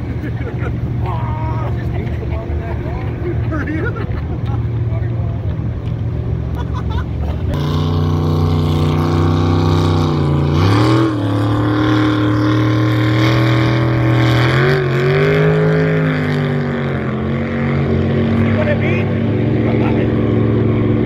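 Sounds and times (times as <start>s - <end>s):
jet boat engine droning: 0.0s - 21.0s.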